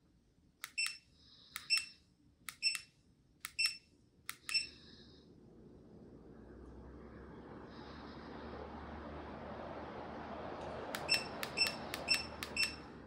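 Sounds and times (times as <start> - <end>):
quick double beeps: 4.4 - 4.8, 11.0 - 12.9
ceiling fan blades whooshing: 4.5 - 13.0.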